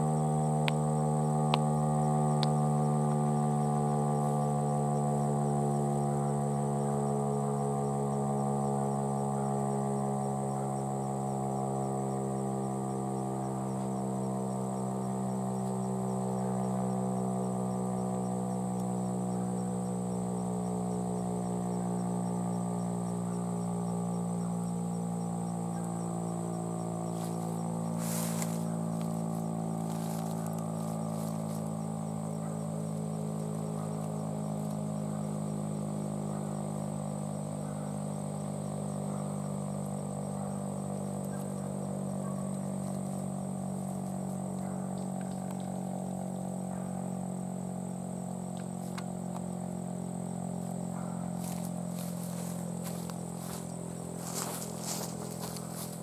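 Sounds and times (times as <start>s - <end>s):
siren sounding a steady chord: 0.0s - 38.0s, 50.6s - 56.0s.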